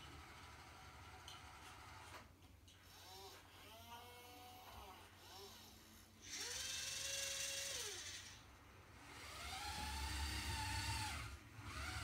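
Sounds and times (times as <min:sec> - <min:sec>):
electric motor and gears whining: 0:02.8 - 0:08.4, 0:09.0 - 0:12.0.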